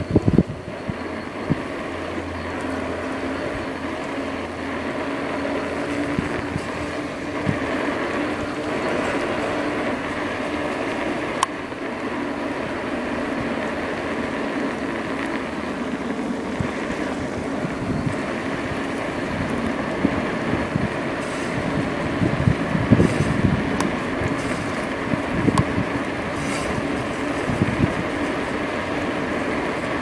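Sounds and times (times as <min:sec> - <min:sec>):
electric bike motor and tyre noise: 0:00.0 - 0:30.0
wind buffeting microphone: 0:00.0 - 0:30.0.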